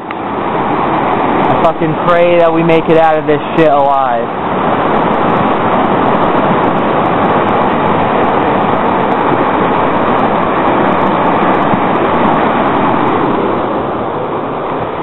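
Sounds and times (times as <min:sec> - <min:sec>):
floodwater rushing: 0:00.0 - 0:15.0.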